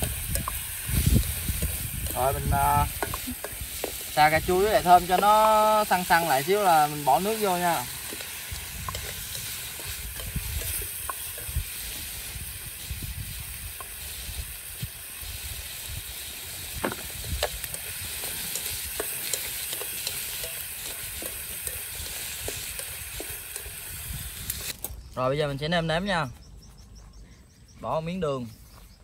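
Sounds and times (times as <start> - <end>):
food sizzling in oil: 0.0 - 24.9
chopsticks clicking: 17.4 - 23.7.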